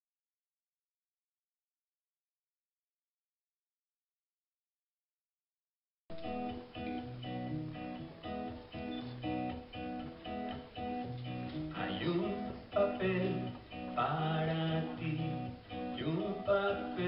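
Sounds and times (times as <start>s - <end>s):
acoustic guitar picking: 6.1s - 17.0s.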